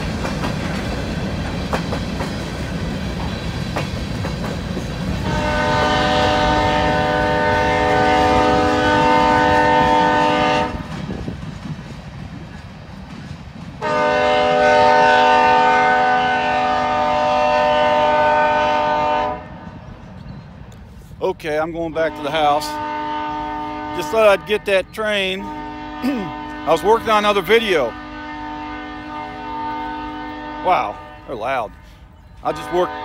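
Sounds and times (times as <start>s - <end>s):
train wheels clicking over rail joints: 0.0s - 5.6s, 10.6s - 14.2s
locomotive air horn blasts: 5.2s - 10.9s, 13.8s - 19.6s, 22.0s - 24.7s, 25.3s - 33.0s.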